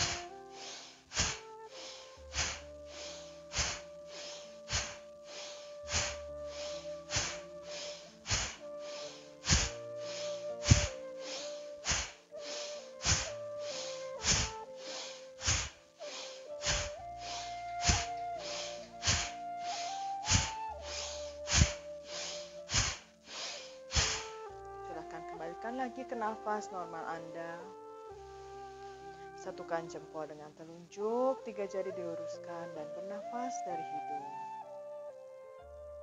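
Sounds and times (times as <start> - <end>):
woman huffing rhythmic breaths: 0.0 - 24.5
soft background music: 0.0 - 36.0.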